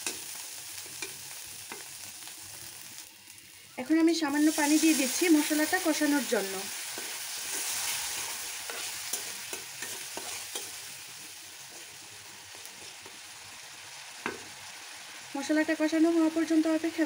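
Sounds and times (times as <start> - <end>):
spice paste sizzling: 0.0 - 17.0
spatula scraping and tapping: 8.7 - 10.8.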